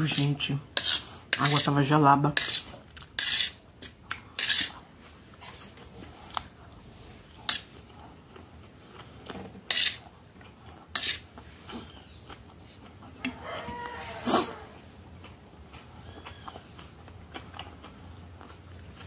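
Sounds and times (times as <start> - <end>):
metal spoon scraping plate: 0.1 - 3.6, 4.4 - 4.8, 7.4 - 7.7, 9.7 - 10.1, 10.9 - 11.3.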